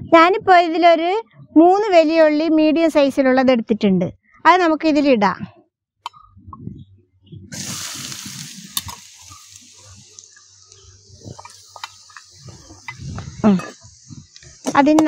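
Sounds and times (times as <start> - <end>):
oil popping: 7.5 - 15.0
onions sizzling in hot oil: 7.6 - 14.7.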